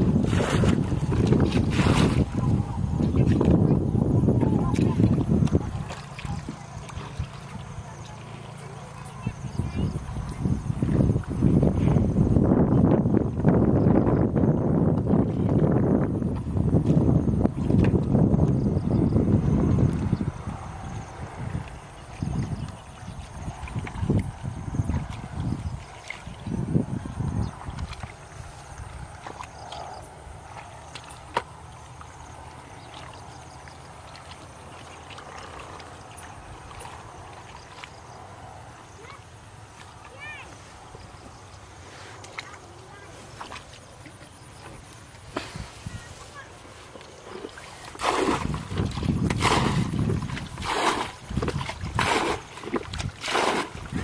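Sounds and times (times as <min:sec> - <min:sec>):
bucket splashing water: 0:00.0 - 0:03.7, 0:30.4 - 0:38.1, 0:47.0 - 0:54.0
hands splashing in muddy water: 0:00.0 - 0:03.7, 0:42.2 - 0:54.0.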